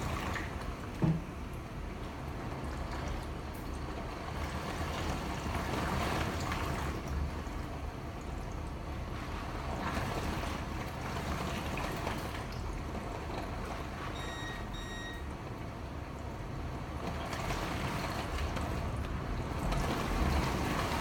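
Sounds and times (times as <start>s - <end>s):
driving rain: 15.3s - 21.0s.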